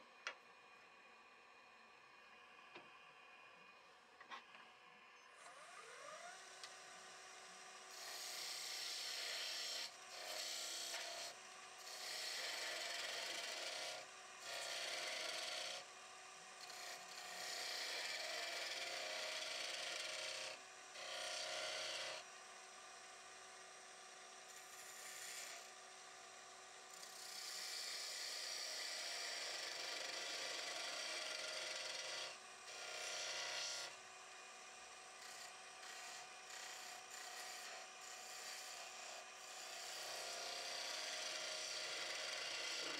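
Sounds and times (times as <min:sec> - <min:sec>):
lathe motor hum: 0:05.6 - 0:24.0, 0:24.6 - 0:33.8, 0:34.6 - 0:42.9
lathe tool scraping wood: 0:07.9 - 0:15.8, 0:16.6 - 0:22.2, 0:24.6 - 0:25.7, 0:27.1 - 0:33.9, 0:35.2 - 0:42.9.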